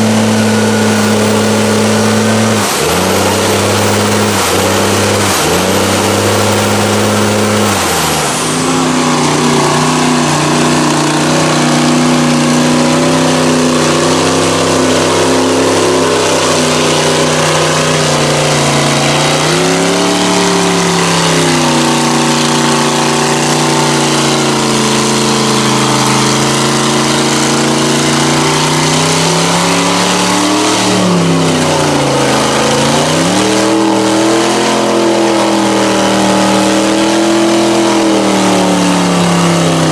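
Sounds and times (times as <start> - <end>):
truck engine revving high: 0.0 - 39.9.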